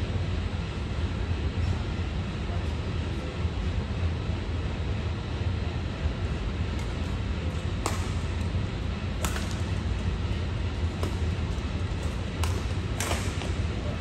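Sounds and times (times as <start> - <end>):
low hum: 0.0 - 14.0
racket striking shuttlecock: 6.7 - 13.8.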